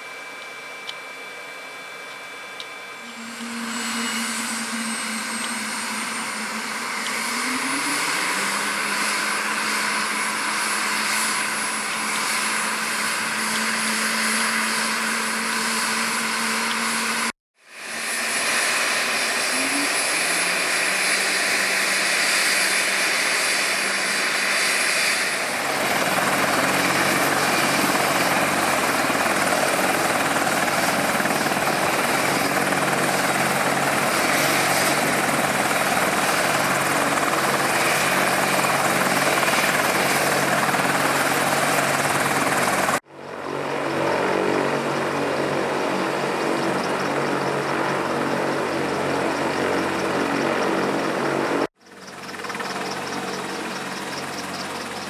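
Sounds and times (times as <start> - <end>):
helicopter rotor and turbine: 0.0 - 55.0
steady low hum: 0.1 - 12.4.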